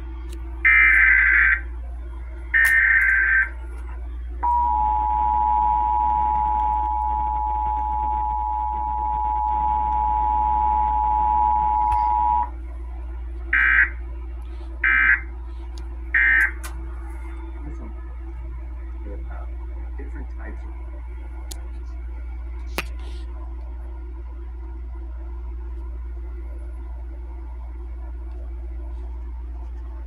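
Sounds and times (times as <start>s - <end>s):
warbling data tones: 0.6s - 1.8s, 2.5s - 3.6s, 4.4s - 12.6s
short data bursts: 2.6s - 3.5s
two-tone attention signal: 4.4s - 12.5s.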